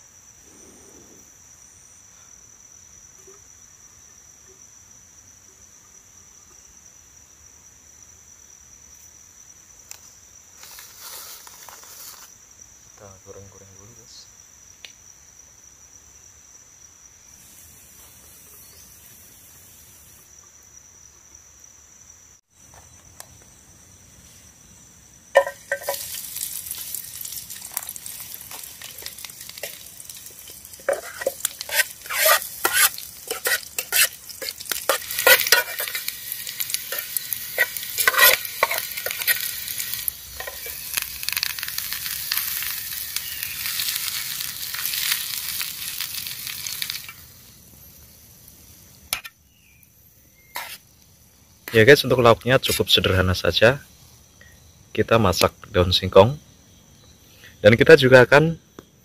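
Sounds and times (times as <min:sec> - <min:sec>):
crickets droning: 0:00.0 - 0:59.0
spoon scraping pot: 0:25.4 - 0:26.2, 0:28.4 - 0:40.9, 0:50.5 - 0:50.8
garlic sizzling in oil: 0:25.4 - 0:49.8, 0:50.4 - 0:52.9.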